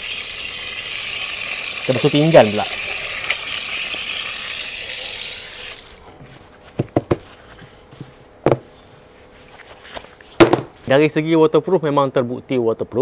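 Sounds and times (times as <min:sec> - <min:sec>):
tap water running over hands: 0:00.0 - 0:06.0.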